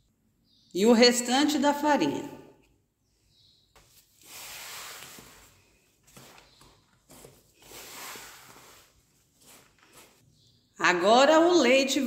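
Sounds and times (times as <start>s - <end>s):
wooden spoon scraping dough: 3.8s - 10.3s.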